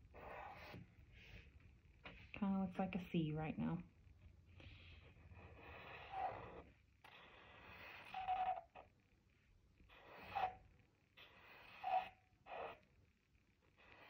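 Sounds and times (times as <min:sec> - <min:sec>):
marker scratching on paper: 0:00.1 - 0:01.5, 0:04.7 - 0:08.8, 0:09.9 - 0:12.9
felt tip squeak: 0:06.0 - 0:08.9, 0:09.9 - 0:12.8.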